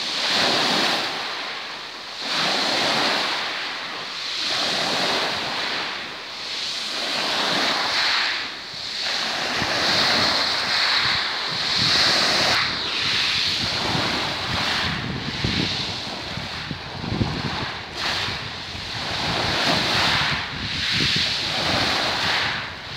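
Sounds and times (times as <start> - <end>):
waves on pebble shore: 0.0 - 22.9
wind gusts on microphone: 2.2 - 22.9.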